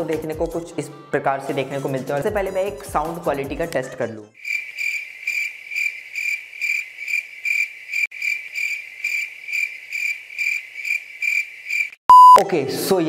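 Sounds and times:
cricket chirping: 0:04.4 - 0:12.0.

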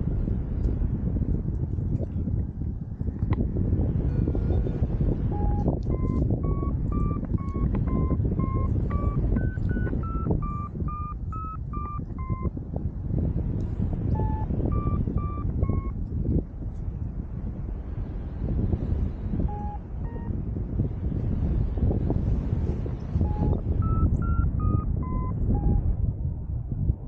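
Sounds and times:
wind noise on microphone: 0:00.0 - 0:27.0
variometer beeping: 0:05.3 - 0:12.6, 0:14.1 - 0:16.0, 0:19.5 - 0:20.4, 0:23.2 - 0:26.0.

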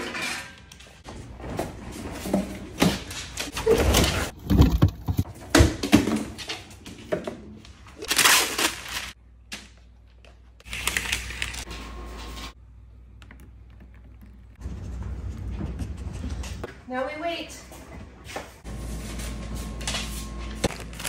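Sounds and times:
cabinet doors and containers rattling: 0:00.0 - 0:07.6.

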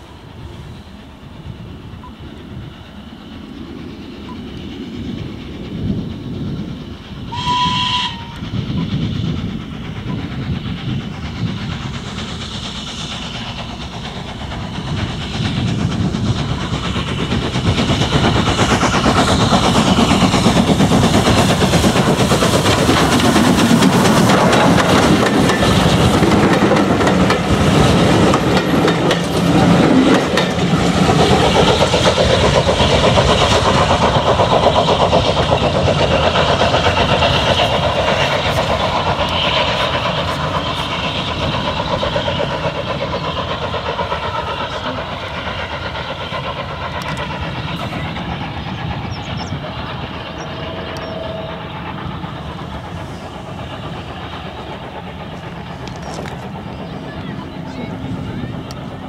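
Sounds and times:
steam locomotive exhaust beating: 0:00.0 - 0:59.0
steam whistle: 0:07.3 - 0:08.4.

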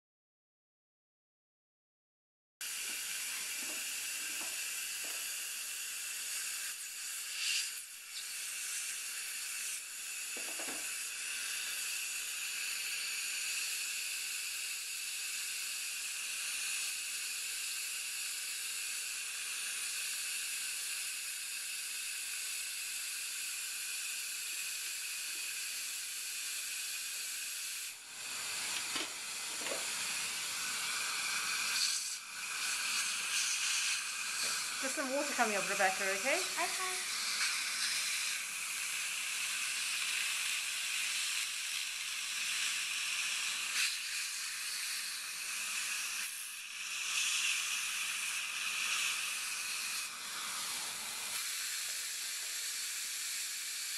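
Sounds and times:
suction hissing: 0:02.6 - 0:14.4, 0:23.2 - 0:53.9.

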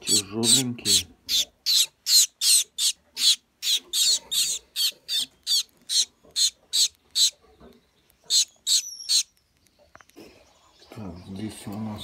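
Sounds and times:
finch nestlings chirping: 0:00.0 - 0:07.4, 0:08.0 - 0:10.2.

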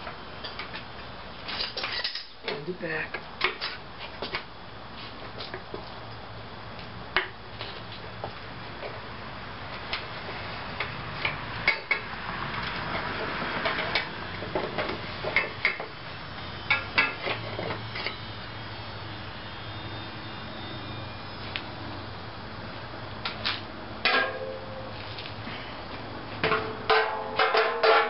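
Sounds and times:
sharp metal clanks: 0:24.0 - 0:24.8, 0:26.4 - 0:28.0.

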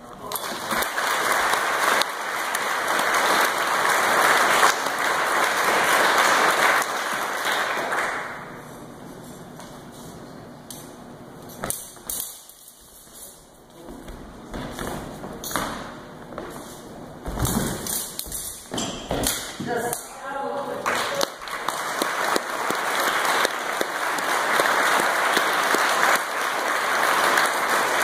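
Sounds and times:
audience applauding: 0:00.3 - 0:08.5, 0:20.8 - 0:28.0.

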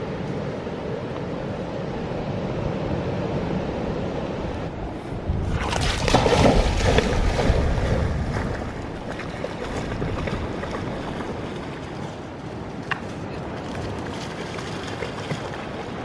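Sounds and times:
dog splashing through water: 0:05.5 - 0:12.3, 0:13.4 - 0:16.0.

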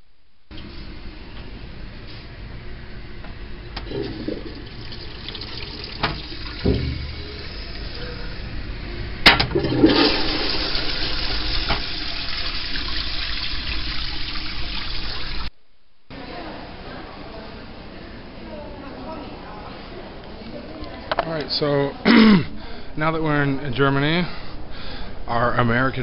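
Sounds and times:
toilet flush water rushing: 0:03.8 - 0:08.0, 0:09.3 - 0:15.5.

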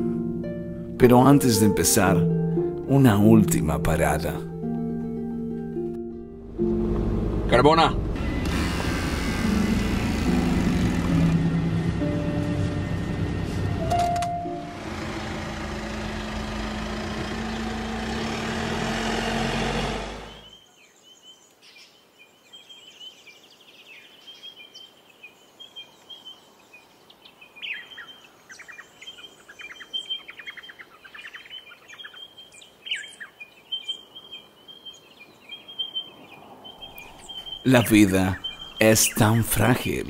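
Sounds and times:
truck engine humming: 0:04.8 - 0:20.5
birds chirping and trilling: 0:14.7 - 0:40.0.

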